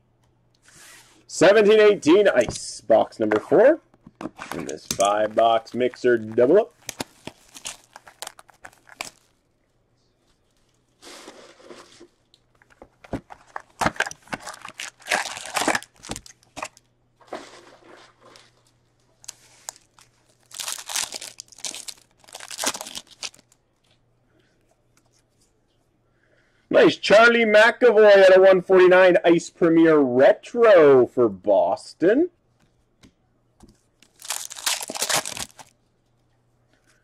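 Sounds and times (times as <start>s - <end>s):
plastic wrapping crinkling and tearing: 4.4s - 9.4s, 12.6s - 23.6s, 34.0s - 35.8s.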